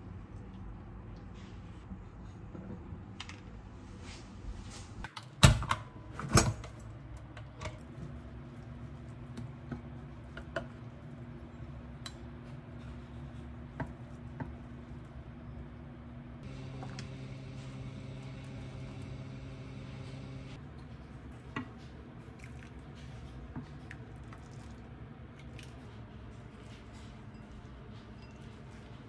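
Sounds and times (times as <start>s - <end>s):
faint steady hum: 16.4s - 20.6s.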